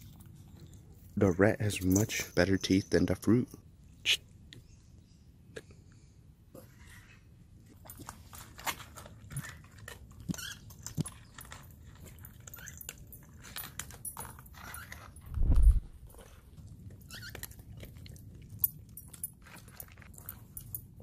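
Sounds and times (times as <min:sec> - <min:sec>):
dogs crunching dry kibble: 0:00.0 - 0:03.0, 0:07.6 - 0:21.0.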